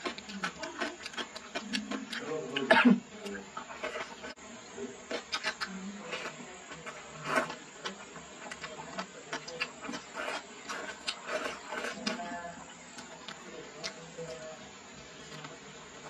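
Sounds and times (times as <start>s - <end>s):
chewing with wet mouth smacks: 0.0s - 4.3s.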